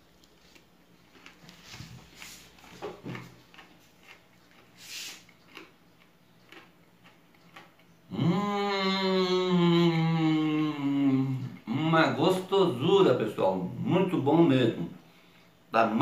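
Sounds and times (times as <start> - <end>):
eating clicks and smacks: 3.4 - 7.9
person humming mmm: 8.1 - 12.2.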